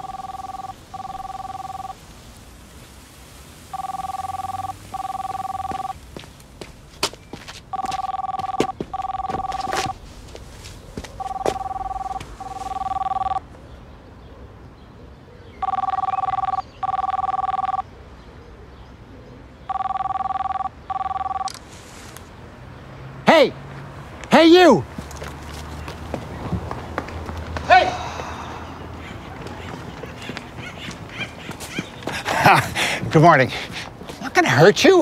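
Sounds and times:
telephone double ringing: 0.0 - 2.0, 3.7 - 6.0, 7.7 - 10.0, 11.2 - 13.4, 15.6 - 17.8, 19.7 - 21.6.

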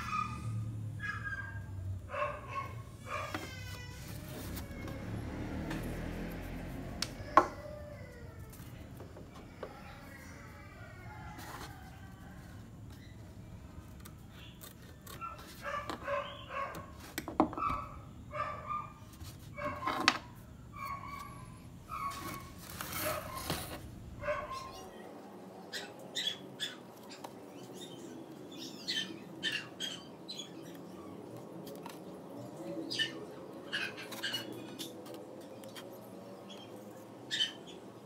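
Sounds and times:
dog barking: 0.0 - 3.4, 15.3 - 16.9, 17.6 - 19.0, 24.2 - 24.8.

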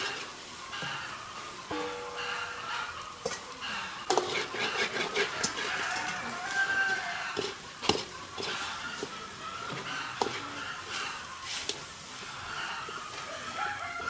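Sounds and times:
ladle scraping fish in a wok: 0.0 - 1.1, 2.2 - 13.6.

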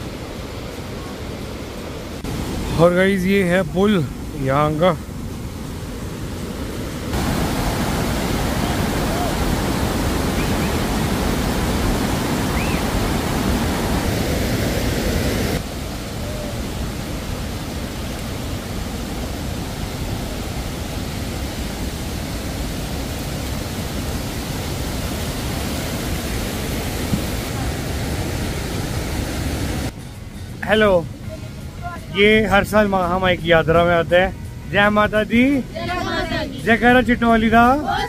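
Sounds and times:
fast-flowing mountain water: 0.0 - 30.0.

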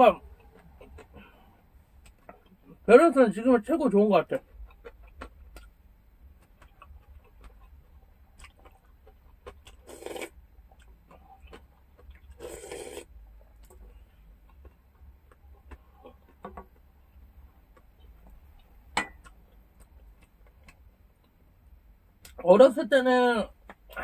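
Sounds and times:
faint chewing: 0.3 - 2.8, 4.3 - 21.5.

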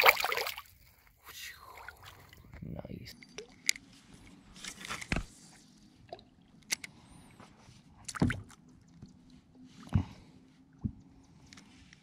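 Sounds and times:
small wet sounds: 0.0 - 2.6.

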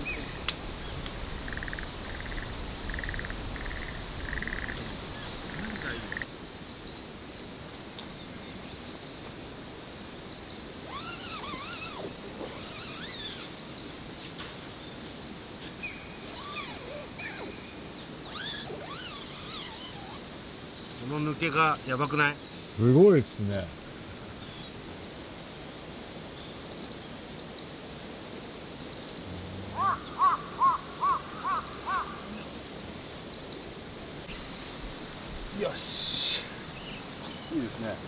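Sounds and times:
birds singing: 0.0 - 9.3, 9.9 - 28.1, 28.8 - 38.0
frog calling: 1.4 - 6.3, 10.9 - 13.5, 18.2 - 20.2, 29.2 - 32.6.

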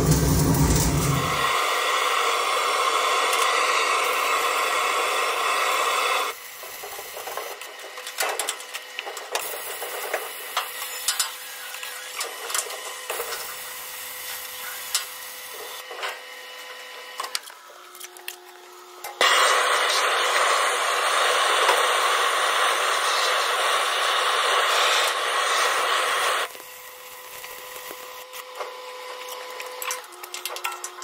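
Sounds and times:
torch hissing: 0.0 - 7.3, 19.2 - 26.6
welding arc crackling and popping: 0.0 - 15.8, 19.2 - 28.5.

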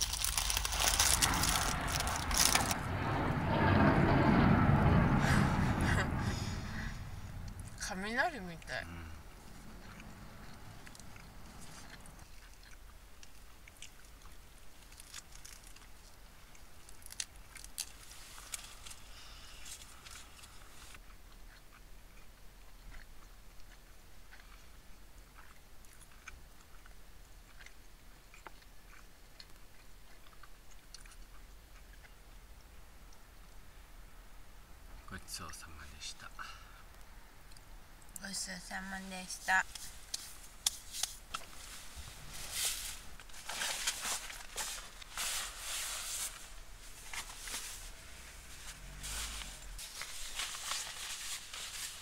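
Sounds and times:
chewing: 0.0 - 2.8, 8.8 - 33.6
rustling handling noise: 0.0 - 2.8, 39.3 - 52.0
low steady hum: 0.0 - 52.0.

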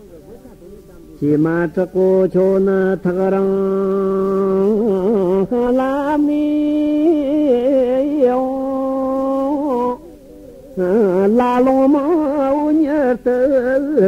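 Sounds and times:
man chanting solo: 0.0 - 14.0.

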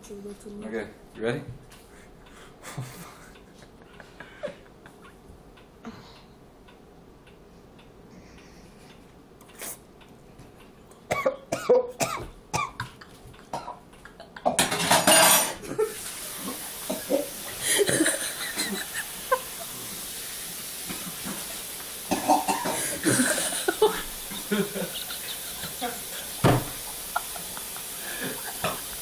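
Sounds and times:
person coughing and choking: 11.1 - 13.8, 16.9 - 18.8, 22.1 - 23.9
running tap water: 14.8 - 29.0
person retching: 22.1 - 23.6.

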